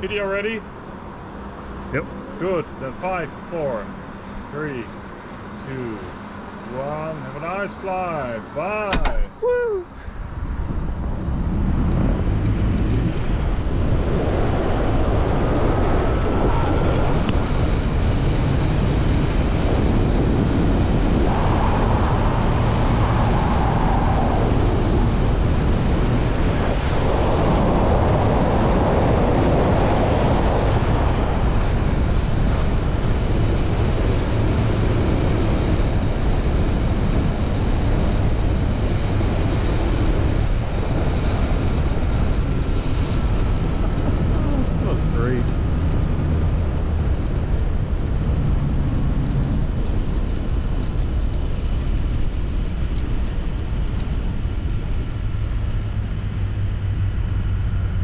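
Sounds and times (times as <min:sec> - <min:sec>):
wind rushing over microphone: 0:00.0 - 0:58.0
trolley running along steel cable: 0:11.3 - 0:28.2, 0:29.6 - 0:58.0.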